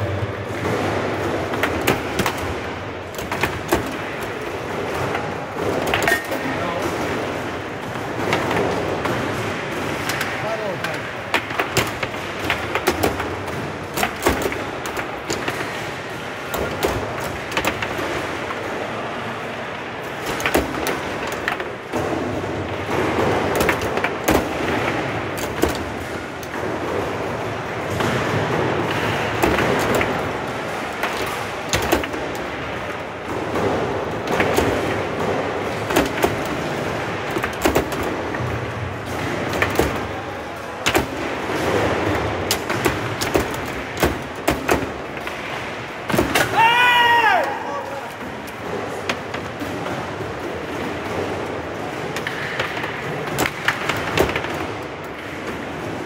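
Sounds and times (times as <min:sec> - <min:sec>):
foosball clacks and knocks: 0:00.0 - 0:47.4, 0:48.2 - 0:56.0
steady background noise: 0:00.0 - 0:56.0.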